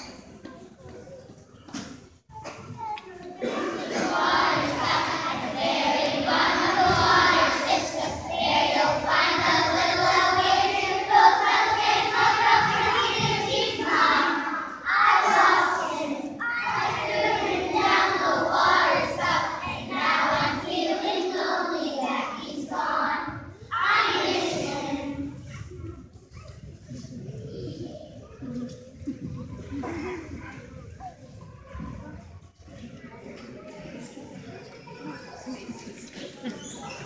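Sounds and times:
children singing together: 0:03.3 - 0:26.0.

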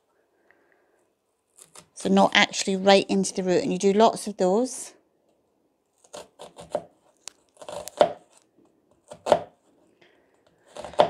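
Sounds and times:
knife slicing onion on board: 0:06.1 - 0:07.0, 0:07.6 - 0:08.4, 0:09.0 - 0:09.6, 0:10.6 - 0:11.0.

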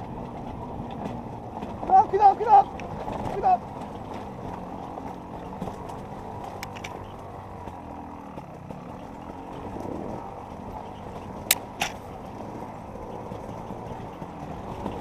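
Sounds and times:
dirt bike engine running: 0:00.0 - 0:15.0.

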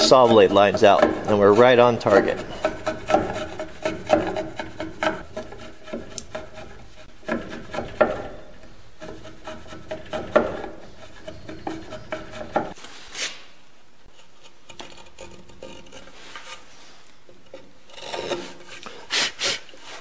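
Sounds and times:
chisel scraping wood: 0:00.0 - 0:13.4, 0:14.0 - 0:20.0
knife blade shaving wood: 0:17.9 - 0:20.0.

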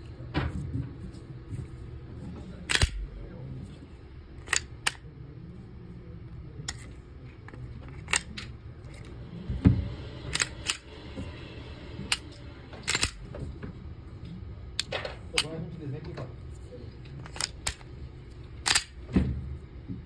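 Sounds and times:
pistol slide metallic clicks: 0:02.7 - 0:03.0, 0:10.3 - 0:10.8, 0:12.9 - 0:13.2, 0:18.6 - 0:19.0.

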